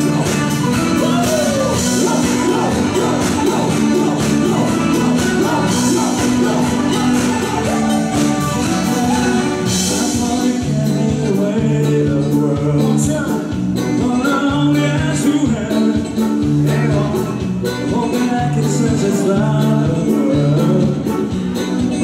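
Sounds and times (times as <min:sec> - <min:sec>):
drum beat: 0:00.0 - 0:11.5
bass line: 0:00.0 - 0:22.0
man singing into a microphone: 0:00.0 - 0:22.0.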